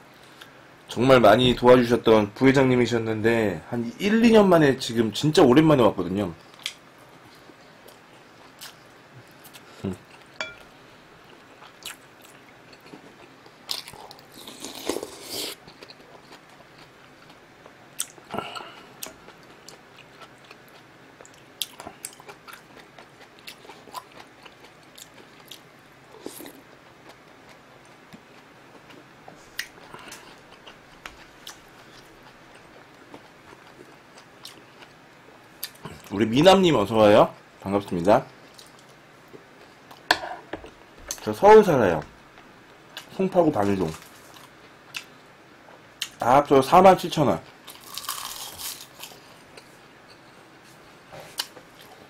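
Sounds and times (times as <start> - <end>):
person chewing food: 6.5 - 36.1, 47.5 - 50.6, 51.2 - 52.0.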